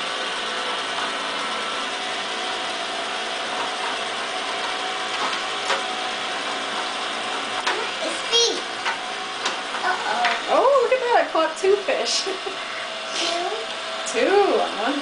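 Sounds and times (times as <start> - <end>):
toy motor whirring: 7.4 - 11.0, 13.0 - 15.0.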